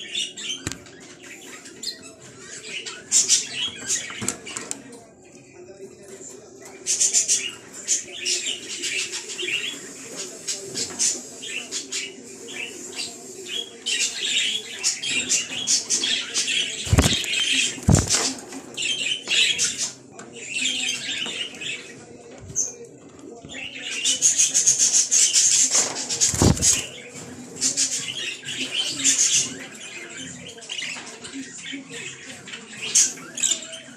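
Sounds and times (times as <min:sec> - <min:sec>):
budgerigars chirping: 0:06.9 - 0:22.0
sharp thumps: 0:16.9 - 0:18.3.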